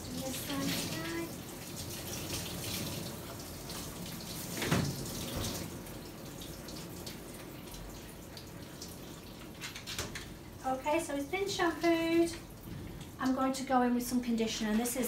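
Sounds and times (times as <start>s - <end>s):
shower water running and splashing: 0.0s - 15.0s
water draining in metal tub: 0.0s - 15.0s.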